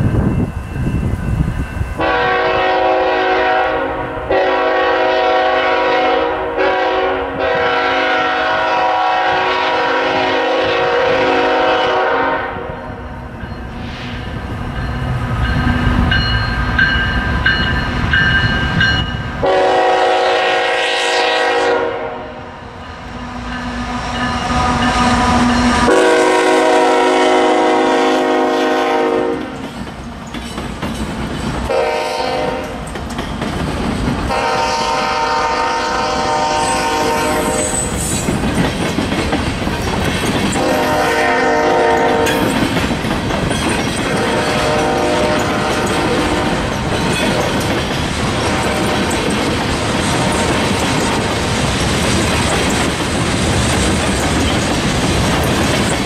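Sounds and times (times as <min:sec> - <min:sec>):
passing train rumble: 0:00.0 - 0:56.0
locomotive air horn: 0:02.0 - 0:13.0, 0:19.4 - 0:22.5, 0:23.2 - 0:29.6, 0:31.7 - 0:32.8, 0:34.3 - 0:37.9, 0:40.6 - 0:42.5, 0:44.1 - 0:46.6.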